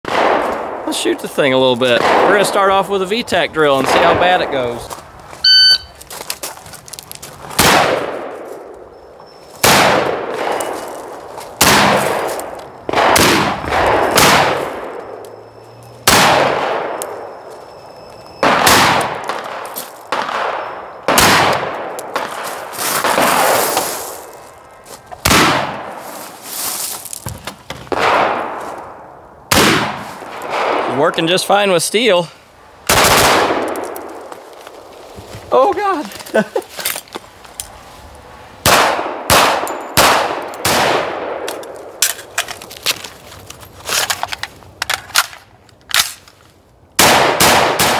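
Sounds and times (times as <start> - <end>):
rifle gunshots: 0.1 - 1.0, 1.9 - 2.7, 7.6 - 8.4, 9.6 - 10.8, 11.6 - 15.1, 16.0 - 17.3, 18.4 - 22.4, 23.0 - 23.7, 25.2 - 26.0, 27.9 - 28.6, 29.5 - 31.0, 32.9 - 34.0, 38.6 - 41.5, 47.0 - 47.9.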